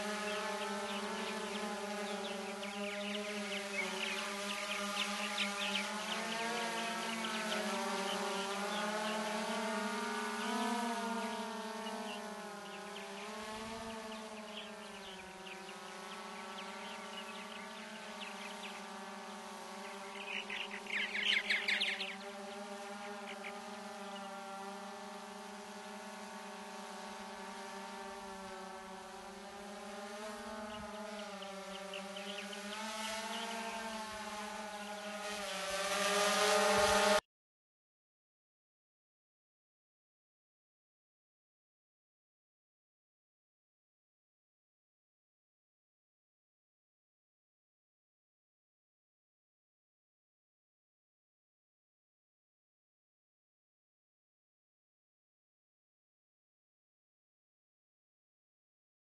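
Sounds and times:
drone rotors whining: 0.0s - 37.2s
birds chattering: 0.1s - 9.6s, 10.2s - 24.4s, 30.4s - 34.0s.

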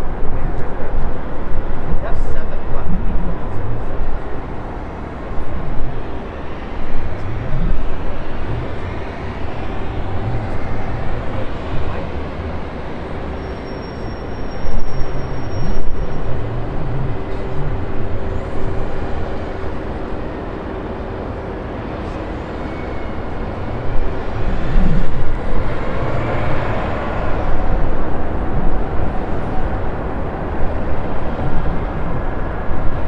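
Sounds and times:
jet engines running: 0.0s - 33.0s.

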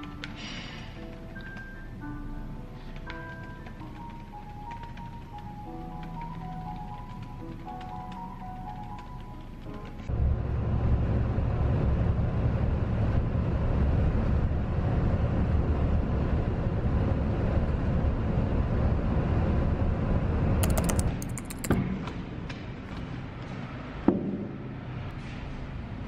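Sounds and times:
bus engine and tyre rumble: 9.6s - 20.6s
sharp clicks: 20.6s - 21.8s.

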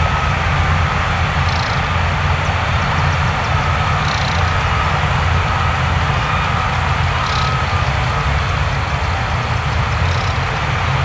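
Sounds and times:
reversing alarm beeping: 0.0s - 8.4s
diesel machinery rumbling: 0.0s - 11.0s.

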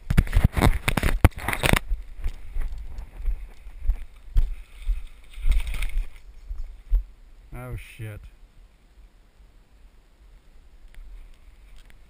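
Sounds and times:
scraping against microphone: 0.0s - 6.9s
footsteps on woodland trail: 0.0s - 7.1s
clothing and gear rustling: 0.2s - 6.9s.

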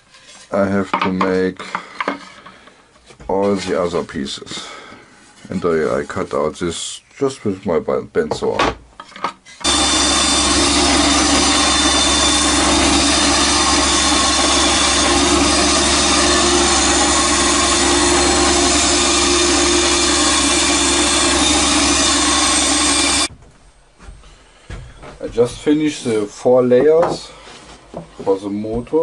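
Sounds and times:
band saw cutting plywood: 9.6s - 23.3s.

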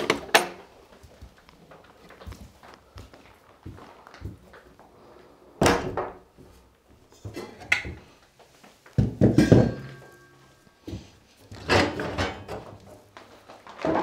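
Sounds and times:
footsteps on wooden floor: 0.9s - 4.7s
metal pipe clunks on stove: 9.3s - 10.3s.

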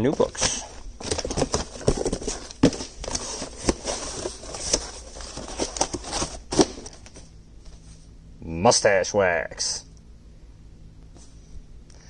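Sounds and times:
cardboard and paper rustling: 0.0s - 8.1s.

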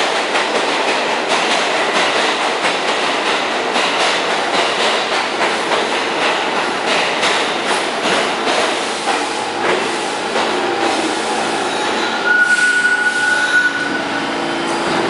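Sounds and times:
subway train rumbling: 0.0s - 15.0s
high brake squeal: 11.7s - 14.1s.

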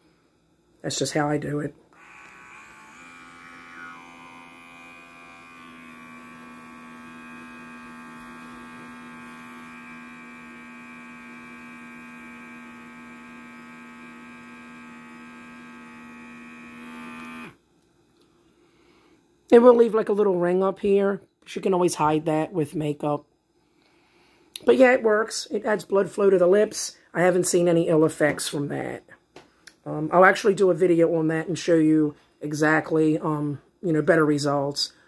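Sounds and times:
small motor pump humming: 2.0s - 17.6s.

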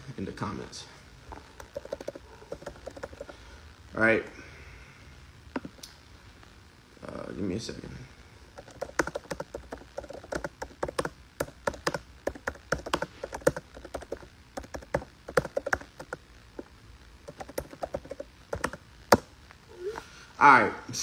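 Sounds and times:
typing taps and clicks: 1.6s - 3.4s, 8.6s - 16.7s, 17.3s - 19.3s.

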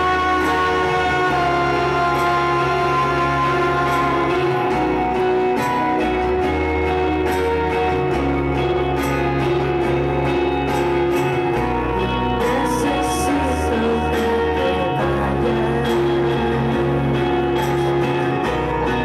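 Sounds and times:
woman singing: 0.0s - 6.1s, 11.9s - 19.0s
deep bass line: 0.0s - 19.0s
strummed acoustic guitar: 0.0s - 19.0s.

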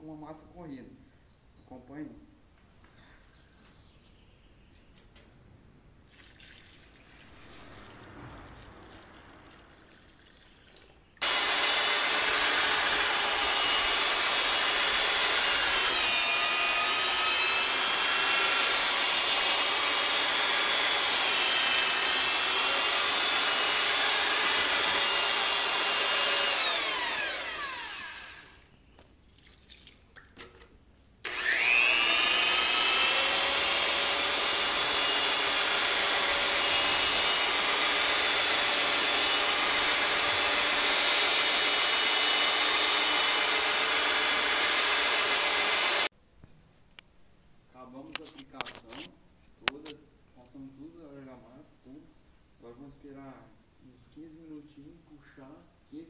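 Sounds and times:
electric paddle mixer whirring: 11.2s - 28.6s, 31.3s - 46.1s.

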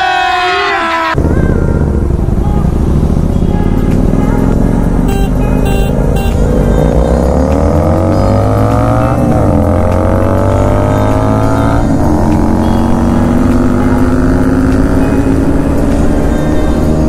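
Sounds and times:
motorcycle engine accelerating: 1.1s - 17.0s.

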